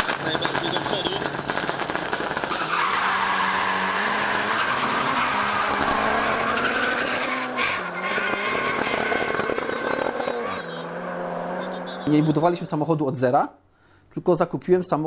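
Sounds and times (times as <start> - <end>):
race car engines revving: 0.0 - 13.0
tyres squealing: 2.4 - 10.7.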